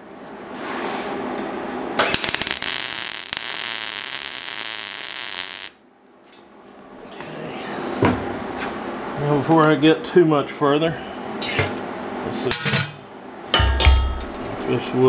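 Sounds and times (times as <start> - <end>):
welder arc crackling: 2.0 - 5.8.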